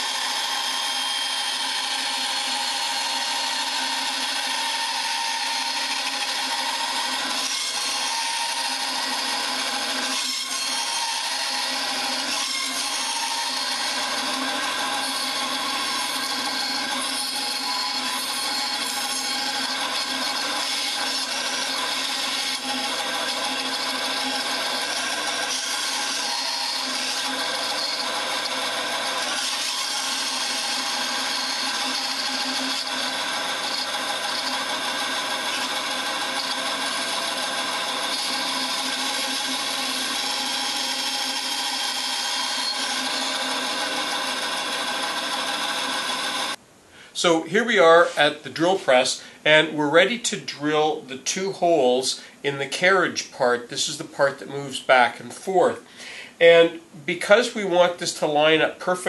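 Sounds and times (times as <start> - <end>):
bandsaw cutting plywood: 0.0 - 46.6.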